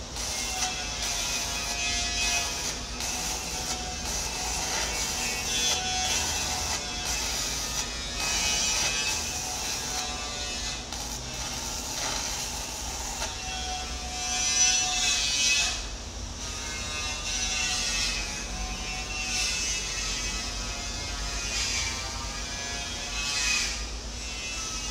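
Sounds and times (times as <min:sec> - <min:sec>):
electric arc welding: 0:00.0 - 0:15.8.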